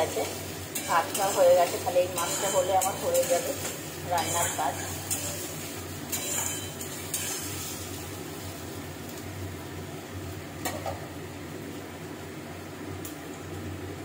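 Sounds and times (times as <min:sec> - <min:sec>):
onions sizzling in oil: 0:00.0 - 0:14.0
metal spatula clicking on pan: 0:00.7 - 0:05.5.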